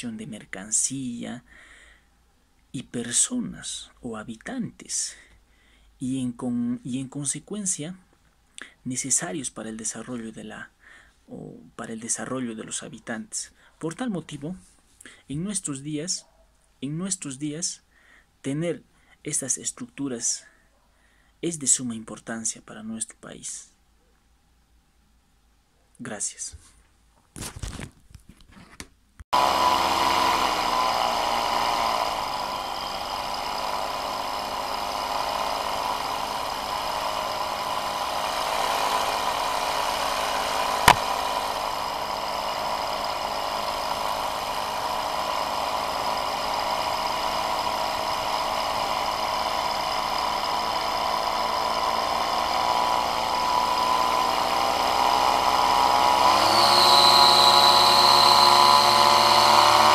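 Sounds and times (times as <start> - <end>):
engine running: 29.4 - 59.9
sharp click: 40.9 - 41.1.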